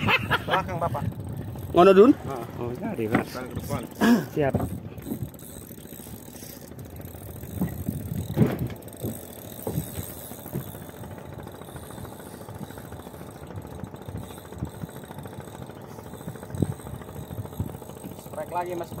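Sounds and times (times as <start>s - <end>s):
boat engine running: 0.0s - 19.0s
knocks and thumps: 7.5s - 10.7s.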